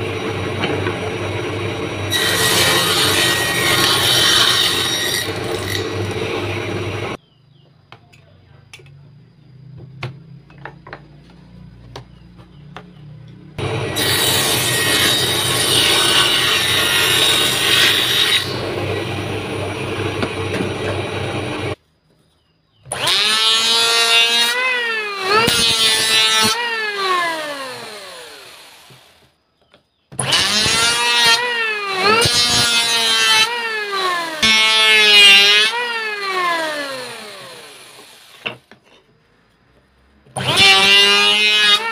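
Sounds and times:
electric hand planer: 0.0 - 7.2, 13.6 - 21.8, 22.9 - 29.2, 30.2 - 38.6, 40.4 - 41.9
table saw ripping wood: 0.0 - 7.2, 13.6 - 21.8, 22.9 - 29.3, 30.1 - 39.0, 40.3 - 41.9.

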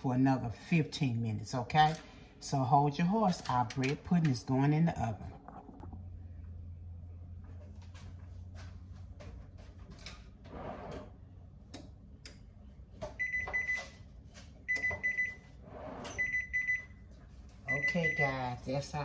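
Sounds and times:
oven timer beeping: 13.2 - 15.5, 16.1 - 17.1, 17.7 - 18.6.

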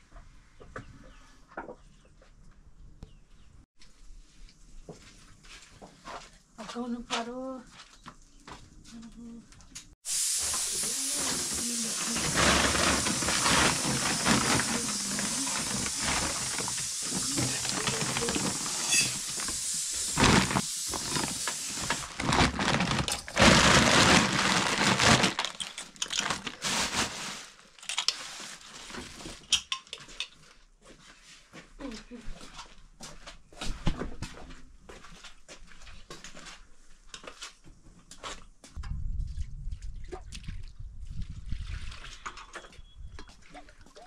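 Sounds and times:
steady hiss: 10.1 - 12.2
pots and utensils clattering: 11.2 - 28.2.

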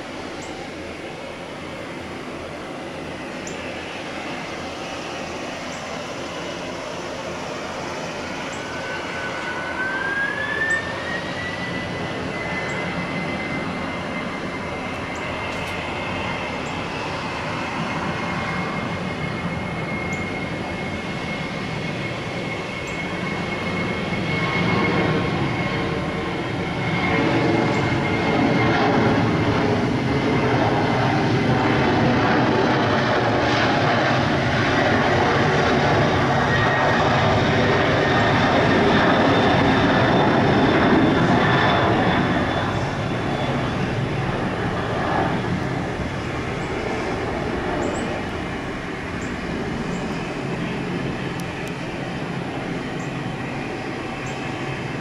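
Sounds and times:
jet engine roar: 0.0 - 55.0
jet engine whine: 0.0 - 55.0.

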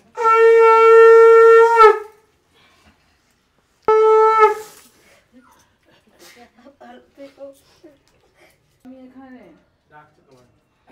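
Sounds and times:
conch shell blasts: 0.0 - 2.3, 3.8 - 4.9.

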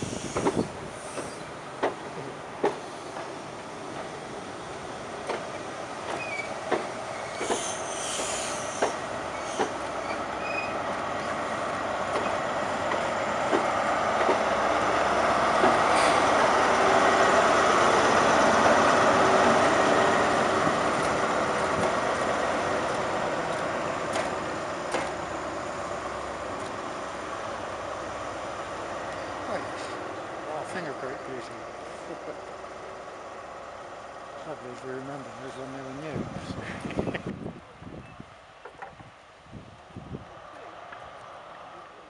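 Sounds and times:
train wheels clicking over rail joints: 0.0 - 4.3, 5.1 - 27.0
diesel engine: 0.0 - 38.6.

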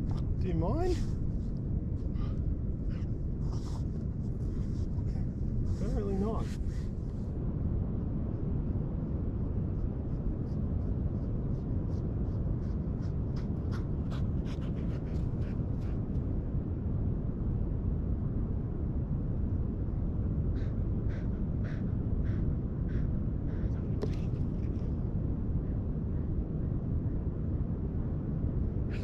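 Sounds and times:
wind rumble on microphone: 0.0 - 29.0
scratchy ticks of dog on sand: 2.2 - 7.2, 9.5 - 16.2, 20.6 - 24.9.

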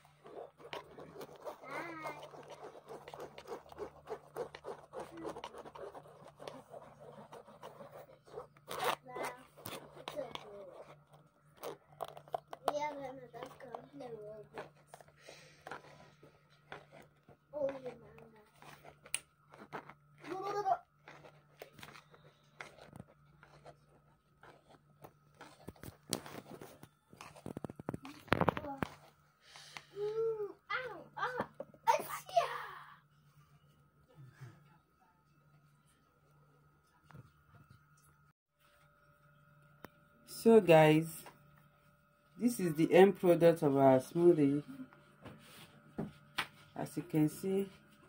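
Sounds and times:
spoon scraping plastic sieve: 0.0 - 29.2
low steady hum: 0.0 - 48.0.

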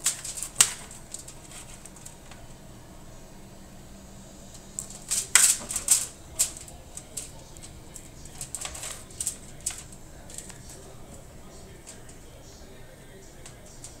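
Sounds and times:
knife and fork clicking on foil: 0.0 - 2.4, 4.7 - 12.2.

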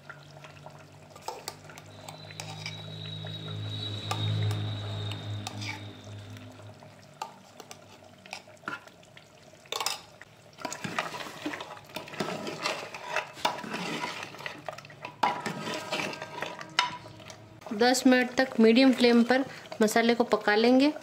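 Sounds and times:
spoon scraping metal pot: 1.1 - 6.5, 9.7 - 17.4.

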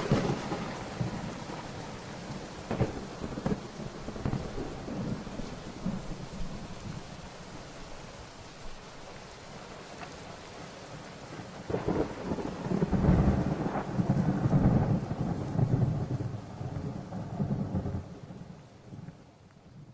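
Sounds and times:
thunder rolling: 0.0 - 7.0, 11.7 - 18.4
steady rain: 0.0 - 19.9.

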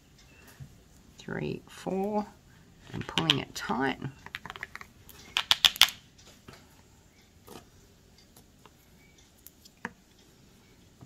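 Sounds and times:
sharp clicks and rustles: 2.8 - 6.6.

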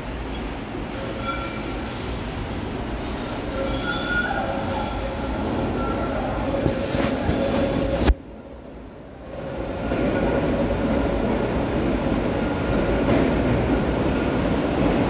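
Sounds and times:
subway train rumbling: 0.0 - 15.0
train wheels squealing: 1.0 - 2.4, 3.0 - 8.0.

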